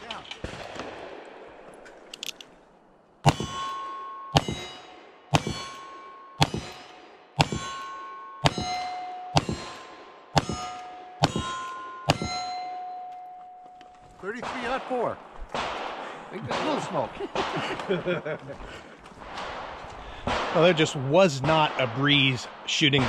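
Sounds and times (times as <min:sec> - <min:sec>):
steel target ringing: 0:03.3 - 0:13.8.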